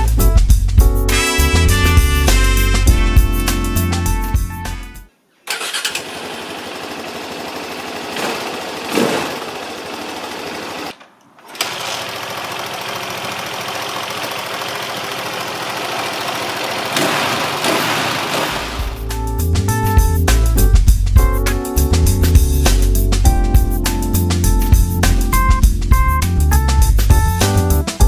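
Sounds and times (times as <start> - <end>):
motorcycle engine running: 6.1 - 10.9, 11.8 - 19.1
engine throttle blips: 12.8 - 19.0.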